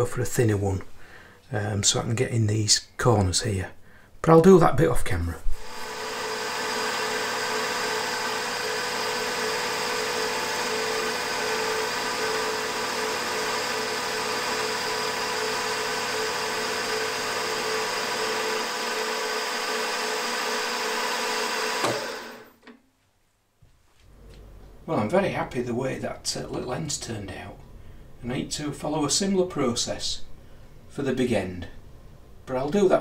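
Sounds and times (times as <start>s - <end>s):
milling machine cutting metal: 5.6s - 22.4s.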